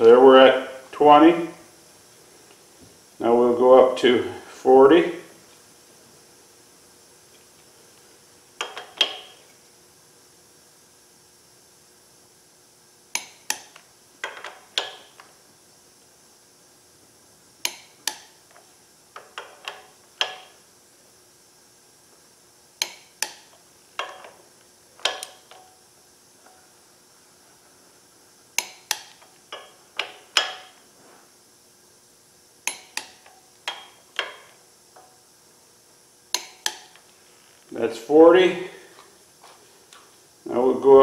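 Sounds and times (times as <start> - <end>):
torque wrench clicking: 22.8 - 24.4, 25.0 - 25.7, 28.6 - 30.8, 32.6 - 35.1, 36.3 - 37.0.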